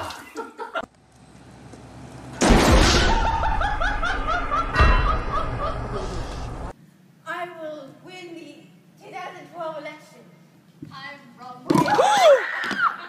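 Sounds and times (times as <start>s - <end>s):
loud crash: 2.4s - 6.7s
person laughing: 3.1s - 6.5s
low thump: 4.2s - 6.7s.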